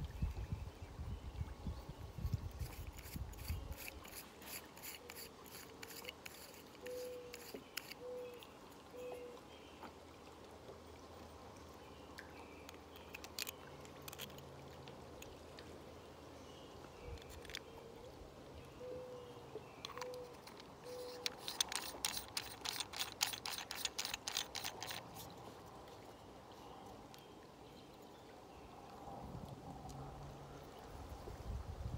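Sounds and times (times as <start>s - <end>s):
plastic parts clicking: 12.7s - 14.4s, 17.2s - 17.6s, 19.8s - 25.2s.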